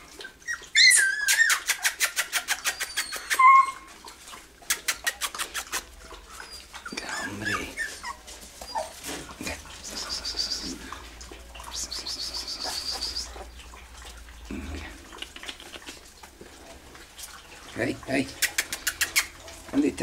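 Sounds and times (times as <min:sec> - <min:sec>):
puppies whimpering and squealing: 0:00.0 - 0:14.1, 0:18.4 - 0:19.6.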